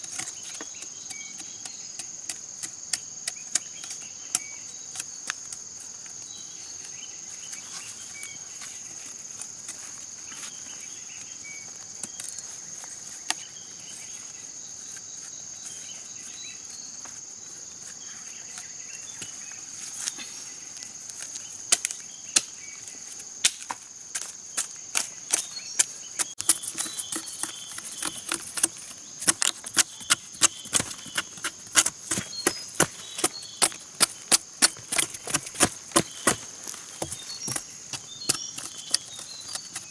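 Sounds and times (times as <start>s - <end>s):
high insect trill: 0.0s - 39.9s
machete chopping: 26.2s - 39.9s.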